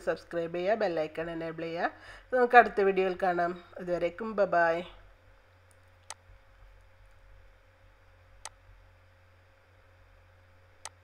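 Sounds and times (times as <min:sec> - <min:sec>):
faint low hum: 0:00.0 - 0:11.0
computer mouse clicks: 0:05.7 - 0:06.2, 0:10.8 - 0:11.0.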